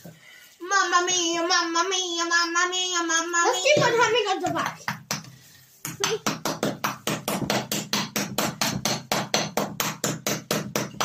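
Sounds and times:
small hammer striking plaster: 0:05.1 - 0:11.0.

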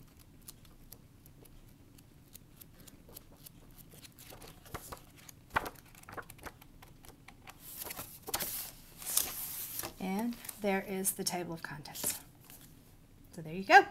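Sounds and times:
book pages flipping: 0:00.0 - 0:10.6, 0:11.9 - 0:12.8.

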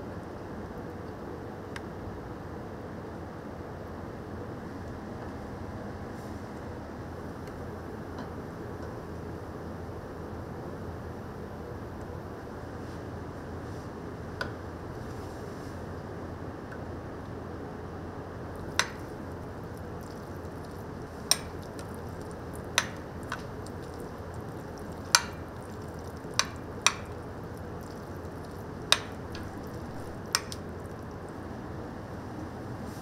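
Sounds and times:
steady background hum: 0:00.0 - 0:33.0
utensil clinking on kitchenware: 0:21.2 - 0:27.2.

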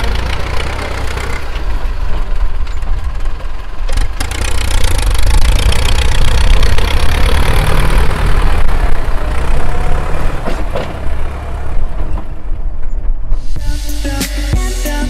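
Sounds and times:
diesel tractor engine drone: 0:00.0 - 0:15.0.

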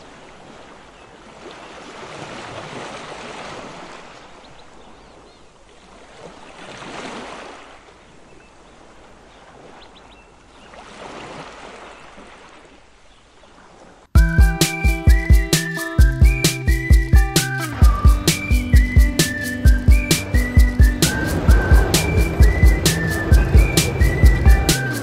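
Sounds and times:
sea waves washing: 0:14.2 - 0:25.0.

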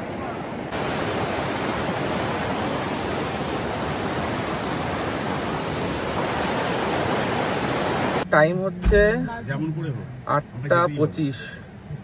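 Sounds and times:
river rushing over stones: 0:00.0 - 0:08.2.

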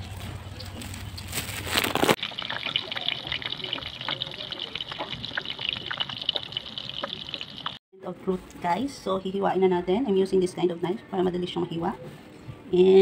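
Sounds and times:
food sizzling in hot oil: 0:02.0 - 0:07.8.

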